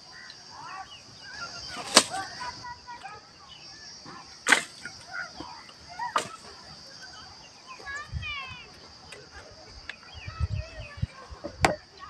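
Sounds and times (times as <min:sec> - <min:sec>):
dry twigs being handled: 0:01.3 - 0:02.6
twigs cracking sharply: 0:01.6 - 0:02.5, 0:04.4 - 0:05.1.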